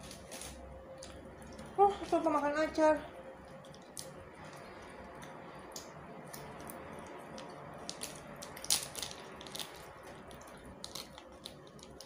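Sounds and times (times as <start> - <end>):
plastic bag crinkling: 7.0 - 12.0.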